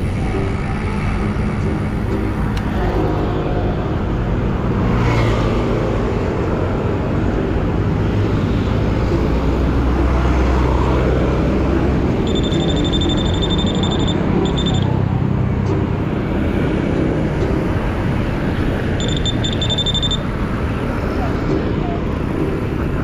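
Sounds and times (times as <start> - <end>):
wind and road noise rumble: 0.0 - 23.0
high-pitched tone: 12.2 - 15.1, 19.0 - 20.4.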